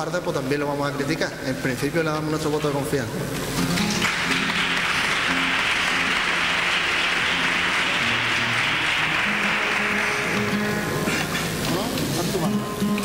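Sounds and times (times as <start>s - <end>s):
crowd applauding: 3.6s - 13.0s.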